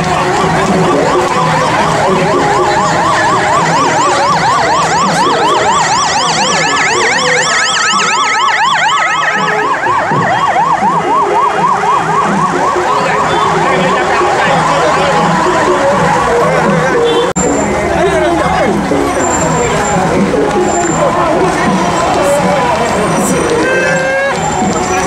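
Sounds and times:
higher siren: 0.0s - 17.5s
siren yelping: 0.0s - 17.8s.

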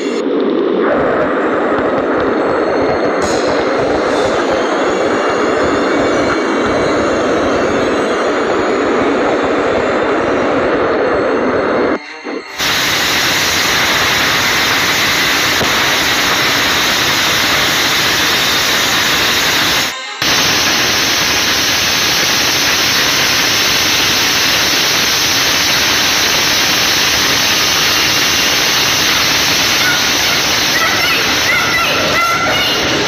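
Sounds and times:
strong wind: 0.0s - 33.0s
rain on microphone: 12.7s - 33.0s.

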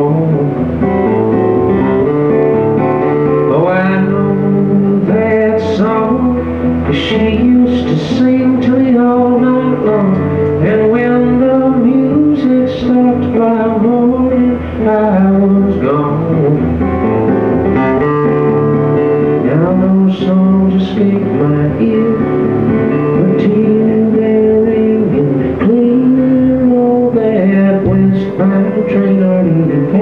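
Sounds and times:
electric guitar: 0.0s - 30.0s
pedal steel guitar: 0.0s - 30.0s
strummed acoustic guitar: 0.0s - 30.0s
drums: 27.8s - 28.8s.

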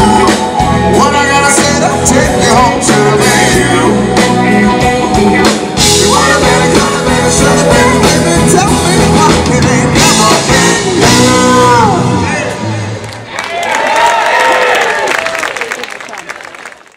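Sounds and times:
live rock band playing: 0.0s - 13.0s
person singing: 0.0s - 13.0s.

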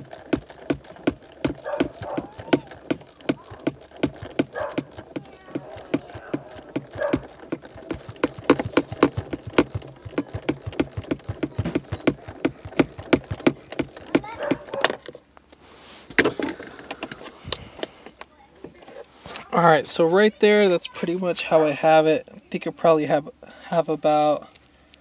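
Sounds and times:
ratcheting wrench clicking: 0.0s - 15.0s.

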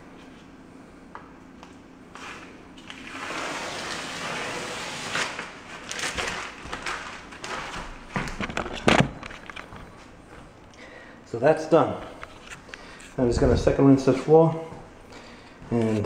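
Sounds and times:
scrubbing on tile floor: 2.1s - 7.9s.

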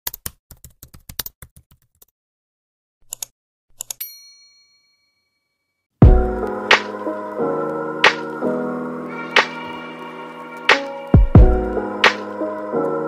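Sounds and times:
keyboard typing clicks: 0.0s - 2.1s
music: 6.0s - 13.0s.

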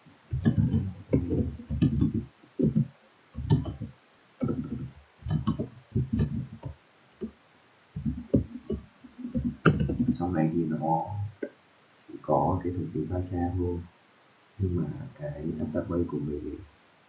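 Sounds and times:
computer keyboard typing: 0.4s - 6.7s.

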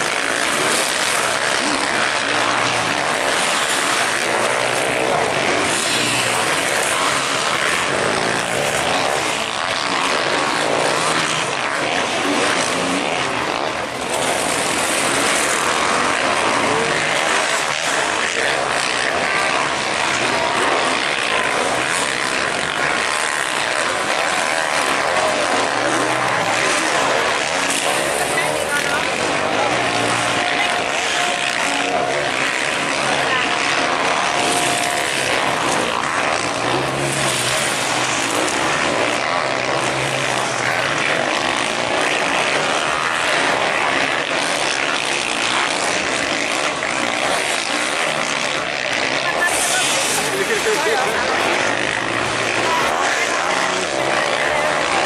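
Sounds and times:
motocross bike engines revving: 0.0s - 55.0s.

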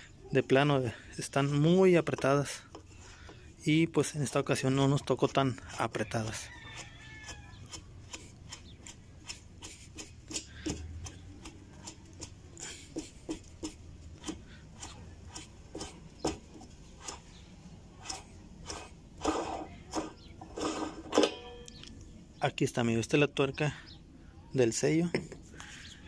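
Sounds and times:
metal rubbing: 4.0s - 21.9s.

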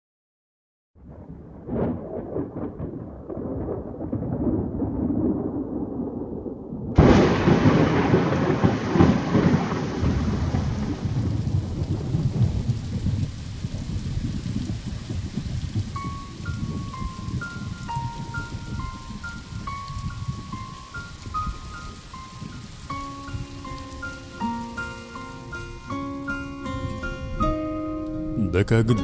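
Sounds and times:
loud thunderclap: 1.0s - 21.8s
rolling thunder: 1.0s - 27.6s
rain: 1.0s - 28.4s.

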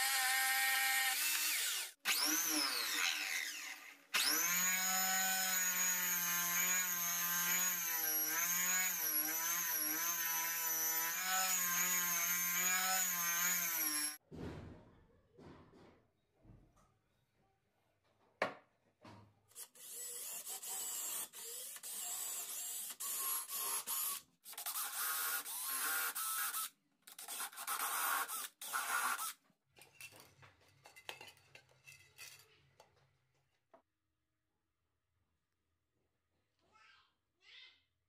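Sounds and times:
cordless drill drilling into wood: 0.0s - 14.2s, 19.8s - 26.7s, 27.3s - 29.4s.

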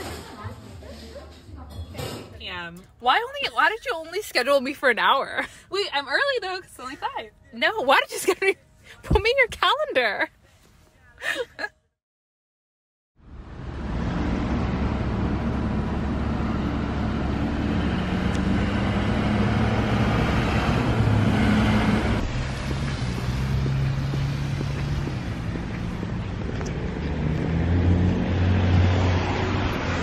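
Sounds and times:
car engines running: 13.2s - 30.0s
tyre noise on wet road: 13.4s - 30.0s.

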